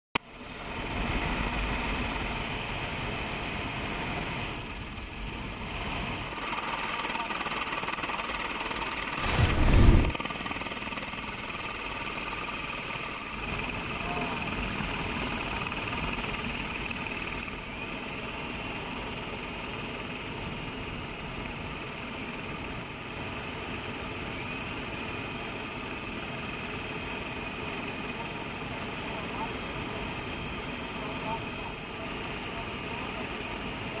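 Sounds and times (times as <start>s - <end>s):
helicopter turbine and rotor noise: 0.2s - 34.0s
wind rush: 9.2s - 10.2s.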